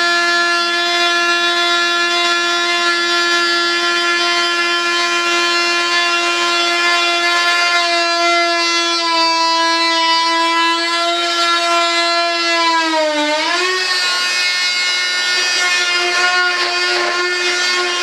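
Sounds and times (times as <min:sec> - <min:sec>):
rotary tool high-pitched whine: 0:09.8 - 0:18.0.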